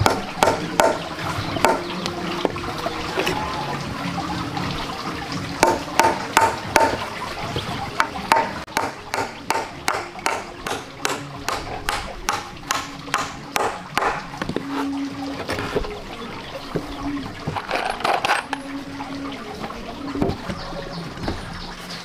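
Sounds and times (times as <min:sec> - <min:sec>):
hatchet chopping log: 0:00.0 - 0:01.9, 0:05.6 - 0:07.1, 0:08.0 - 0:14.6.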